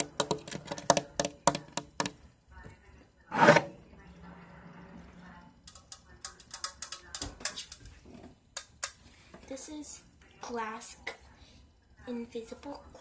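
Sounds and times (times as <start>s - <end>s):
fingers tapping aerosol can: 0.0s - 2.2s.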